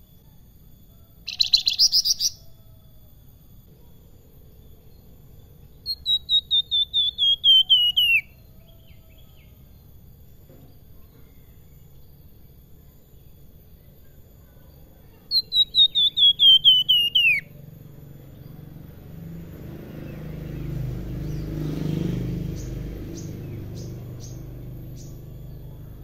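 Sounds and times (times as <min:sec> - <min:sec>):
bird whistling song: 0:01.2 - 0:02.6, 0:05.7 - 0:09.9, 0:15.2 - 0:17.7, 0:20.0 - 0:25.7.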